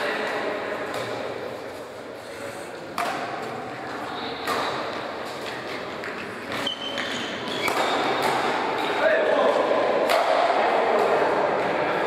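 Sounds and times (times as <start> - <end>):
racket hitting shuttlecock: 2.9 - 3.6, 4.4 - 5.1, 6.5 - 9.0, 10.0 - 11.1.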